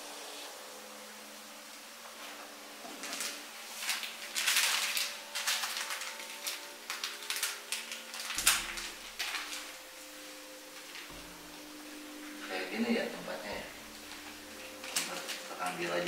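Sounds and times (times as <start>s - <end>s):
plastic sachet crinkling: 2.9s - 12.6s, 13.3s - 16.0s.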